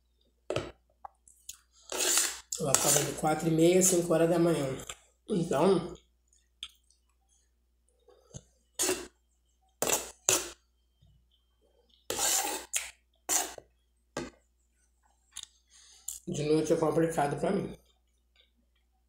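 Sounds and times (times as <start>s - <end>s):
metal spoon scraping a plate: 12.1s - 12.7s, 13.3s - 13.6s.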